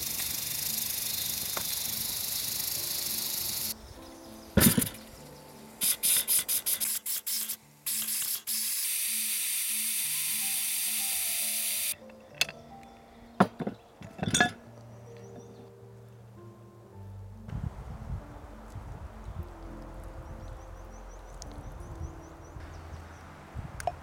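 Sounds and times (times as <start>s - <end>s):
steam hissing from valve: 0.0s - 3.8s, 5.8s - 12.0s
metal lid clanks: 4.6s - 5.0s, 13.4s - 14.6s.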